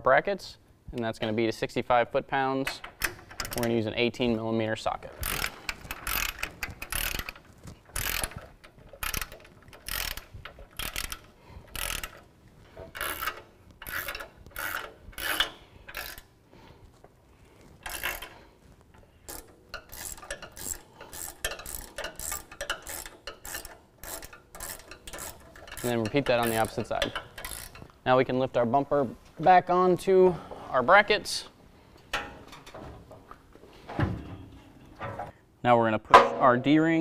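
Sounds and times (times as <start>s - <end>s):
ratchet wrench clicking: 2.8s - 3.8s, 5.2s - 16.3s, 17.8s - 18.4s, 19.2s - 27.9s.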